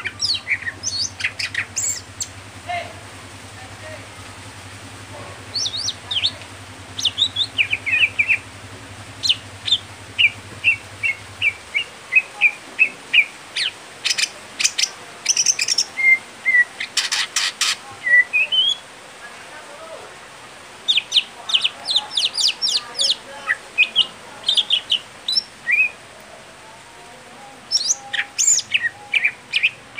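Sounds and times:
bird singing whistled notes: 0.0 - 2.3, 5.5 - 6.4, 7.0 - 8.4, 9.2 - 16.7, 18.0 - 18.8, 23.8 - 26.0, 27.7 - 29.8.

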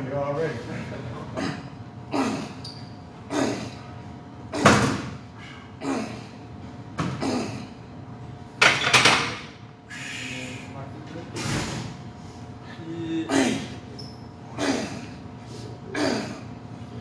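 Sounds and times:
man grunting exhalations: 12.7 - 13.8.

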